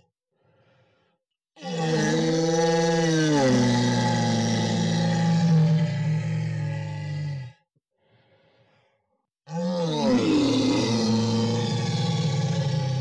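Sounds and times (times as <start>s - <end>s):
person groaning like a monster: 9.5s - 11.6s.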